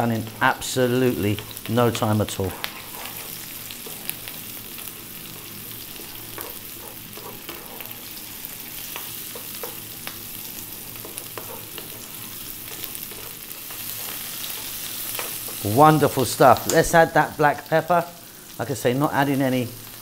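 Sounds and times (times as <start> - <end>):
vegetables sizzling in oil: 0.0 - 20.0
wooden spatula scraping a pan: 2.3 - 9.9, 11.0 - 15.7.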